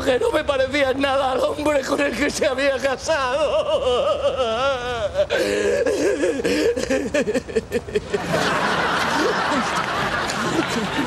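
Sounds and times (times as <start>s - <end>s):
man comic crying: 0.0s - 0.6s, 1.3s - 8.1s
studio audience crowd noise: 8.1s - 11.0s.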